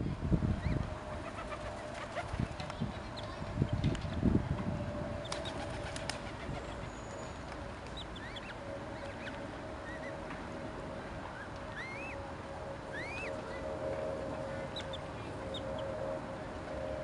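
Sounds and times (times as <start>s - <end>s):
low hum: 0.0s - 17.0s
birds chirping: 5.2s - 10.2s, 11.0s - 12.2s, 12.9s - 16.2s.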